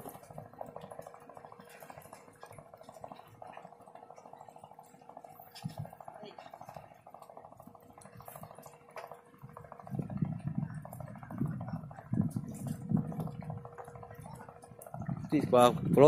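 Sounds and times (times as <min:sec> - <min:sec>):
fast rattle of fine ticks: 0:00.0 - 0:16.0
steady hum: 0:00.0 - 0:16.0
uneven low rumbles: 0:09.4 - 0:16.0.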